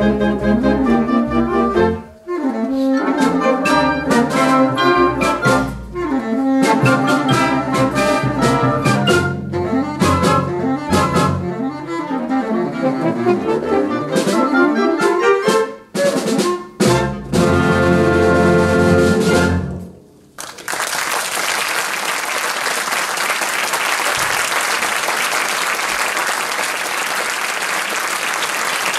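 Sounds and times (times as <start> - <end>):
concert wind band playing: 0.0 - 20.0
audience applauding: 20.4 - 28.9.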